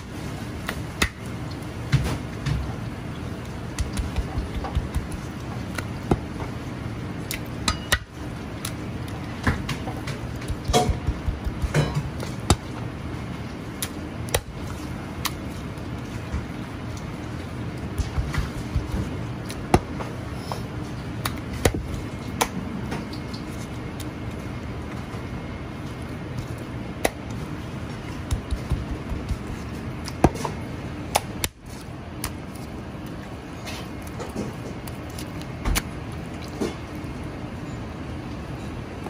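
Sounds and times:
kitchen background rumble: 0.0 - 39.0
steady background hum: 0.0 - 39.0.

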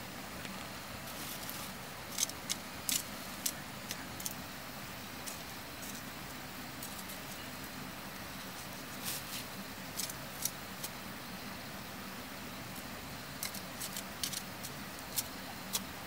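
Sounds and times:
low background hum: 0.0 - 16.0
soil and grass rustling: 0.0 - 16.0.

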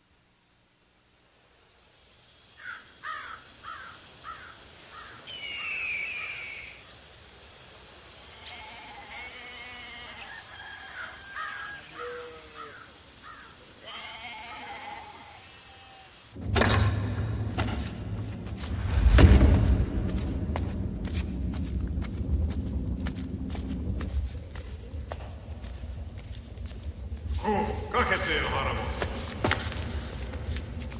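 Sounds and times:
birds chirping and warbling: 2.4 - 16.3.

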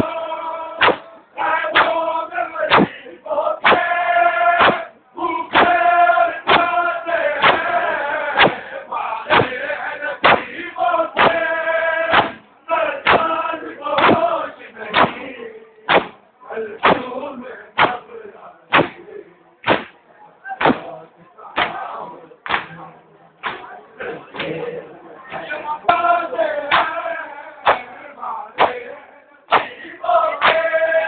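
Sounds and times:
men chanting in unison: 0.0 - 19.8, 20.4 - 31.0
hands beating chests: 0.8 - 2.0, 2.7 - 3.0, 3.6 - 4.0, 4.6 - 4.9, 5.5 - 5.8, 6.4 - 6.8, 7.4 - 7.8, 8.4 - 8.7, 9.3 - 9.6, 10.2 - 10.5, 11.2 - 11.5, 12.1 - 13.3, 14.0 - 14.3, 14.9 - 15.2, 15.9 - 16.2, 16.8 - 17.1, 17.8 - 18.1, 18.7 - 20.0, 20.6 - 21.0, 21.6 - 22.8, 23.4 - 23.8, 26.7 - 27.0, 27.6 - 28.0, 28.6 - 28.9, 29.5 - 30.8.

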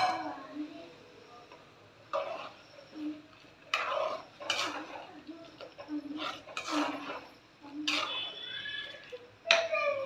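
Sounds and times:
metal ladle scraping metal pot: 2.1 - 9.2.

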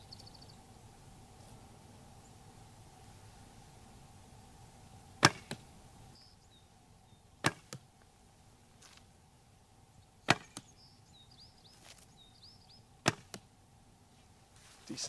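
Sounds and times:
arrow knocking into hay bale: 5.2 - 5.6, 7.4 - 7.8, 10.2 - 10.7, 13.0 - 13.4.

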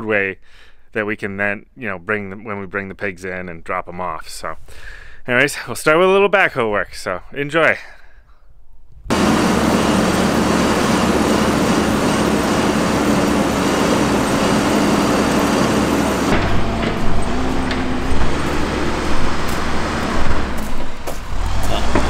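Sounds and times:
diesel engine running: 9.1 - 22.0
knocks of machine working: 9.1 - 22.0.

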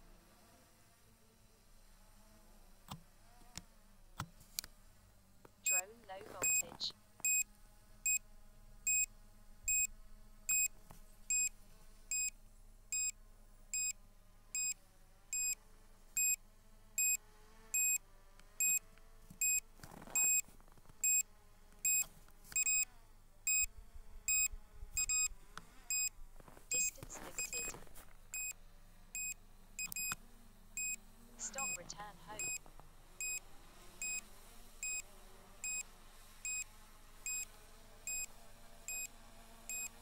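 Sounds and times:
high electronic warning beep: 5.7 - 7.4, 26.7 - 27.7, 30.8 - 32.6.

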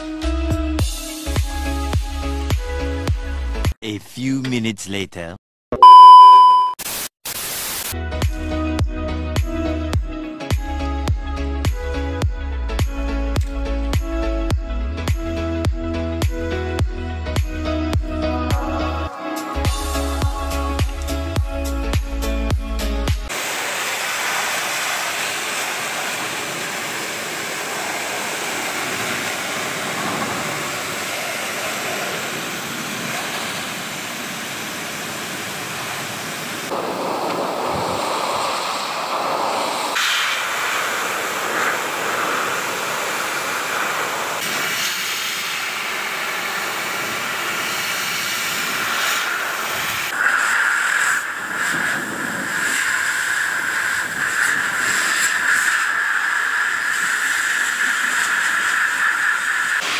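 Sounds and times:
pet dryer blowing air: 23.3 - 34.6, 36.7 - 59.9.

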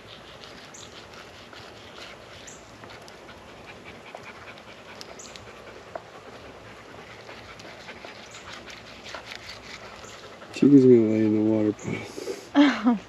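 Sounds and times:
dog panting: 0.0 - 11.8.

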